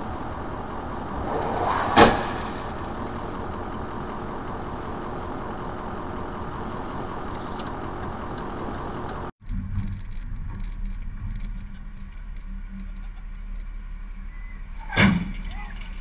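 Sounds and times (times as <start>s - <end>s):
car engine hum: 0.0s - 16.0s
car crash: 1.0s - 4.8s, 14.8s - 16.0s.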